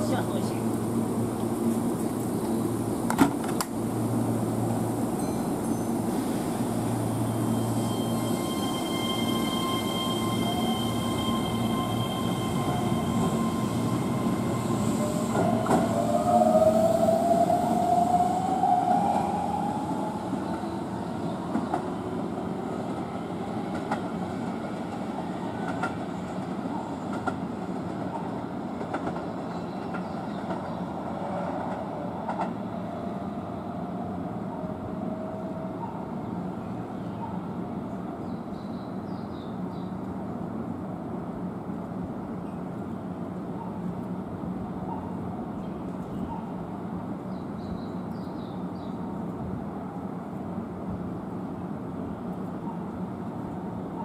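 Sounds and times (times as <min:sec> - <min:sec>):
train wheels on rails: 0:00.0 - 0:32.7.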